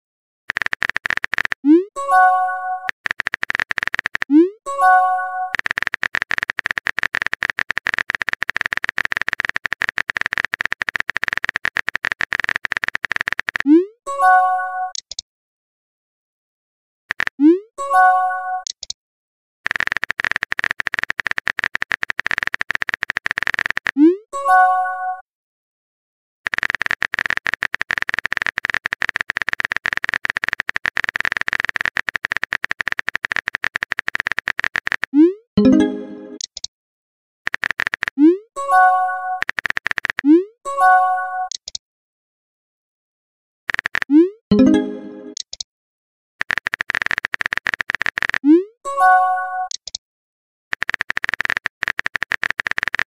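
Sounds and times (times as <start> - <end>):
phone keyboard typing clicks: 0.5 - 4.4, 5.5 - 13.8, 14.9 - 15.2, 17.1 - 17.5, 18.6 - 19.0, 19.7 - 24.0, 26.5 - 36.7, 37.5 - 40.4, 41.5 - 41.8, 43.7 - 45.6, 46.4 - 48.7, 49.6 - 50.0, 50.7 - 53.0
message arrival chime: 35.6 - 36.4, 44.5 - 45.4.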